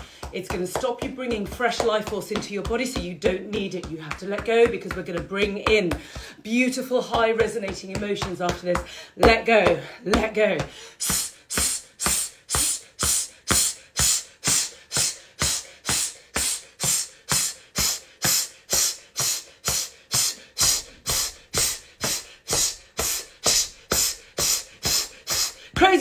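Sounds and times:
woman breathing out forcefully: 8.9 - 9.2, 10.7 - 25.8.

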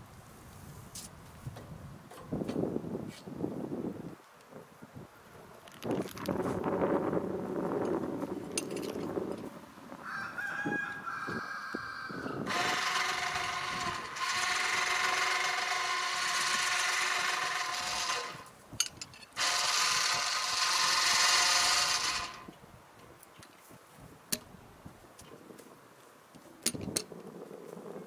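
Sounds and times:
electric winch motor whine: 12.4 - 18.5, 19.4 - 22.5.

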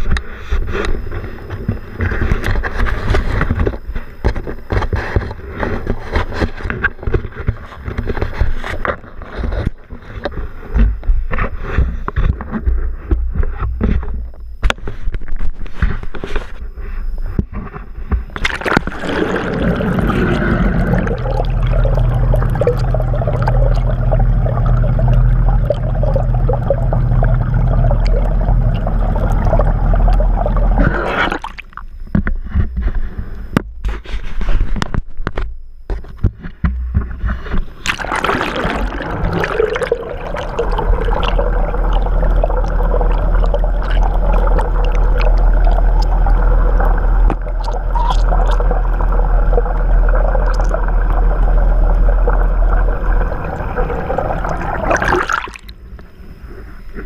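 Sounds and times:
low steady hum: 0.0 - 57.0
underwater rush of bubbles: 18.2 - 31.8, 37.8 - 55.8.

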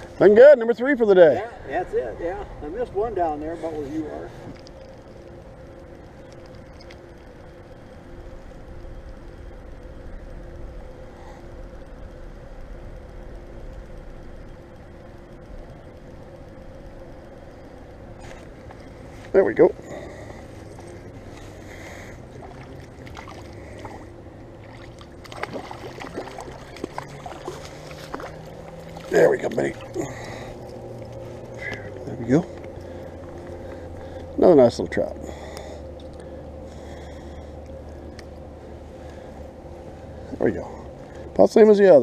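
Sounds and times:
faint steady hum: 0.0 - 42.0
fish splashing in water: 22.4 - 31.2
light ticks: 30.6 - 34.0, 35.5 - 36.3, 37.6 - 38.4.

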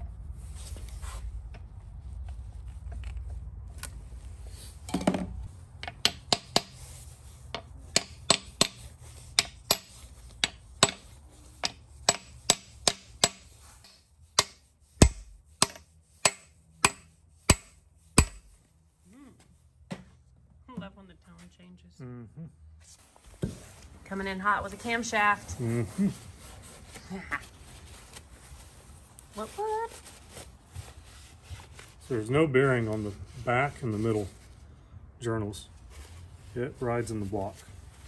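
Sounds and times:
hammer thud: 14.4 - 18.6.

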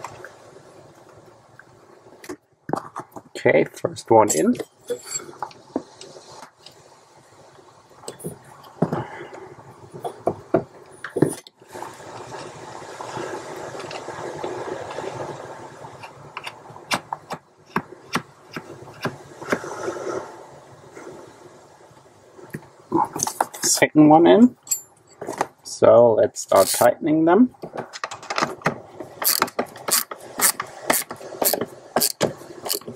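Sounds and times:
rustling and scraping: 24.7 - 25.6.

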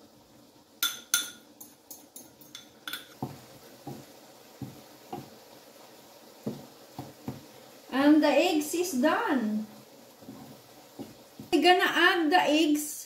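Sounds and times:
spatula scraping frying pan: 9.7 - 11.8.

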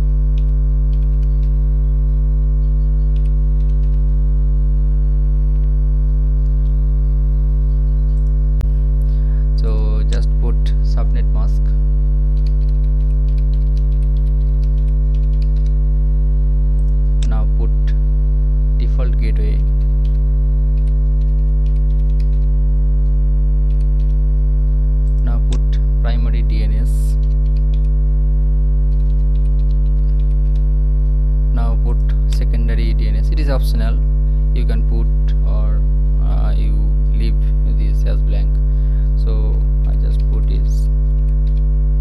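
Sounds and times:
electrical mains hum: 0.0 - 42.0
keyboard keys clicking: 0.4 - 1.6, 3.1 - 4.0, 12.4 - 15.8, 20.8 - 22.5, 27.2 - 27.9, 28.9 - 30.6.

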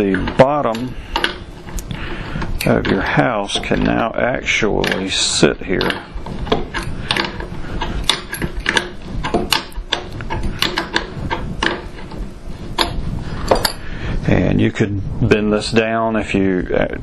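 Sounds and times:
wrench clicking on metal bolts: 5.8 - 12.0.

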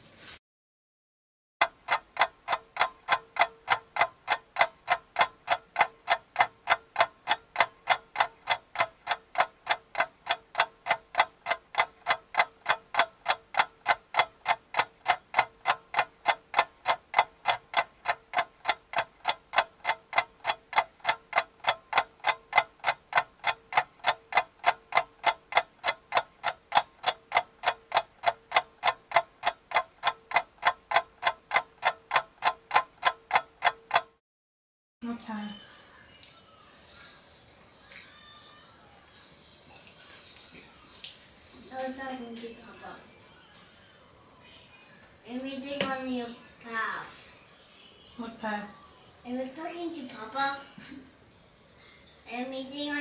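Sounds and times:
fast even ticking: 1.6 - 34.2.

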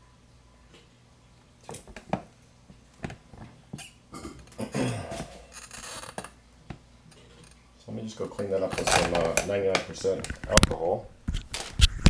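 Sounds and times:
microphone scratchy rustling: 8.6 - 12.0.

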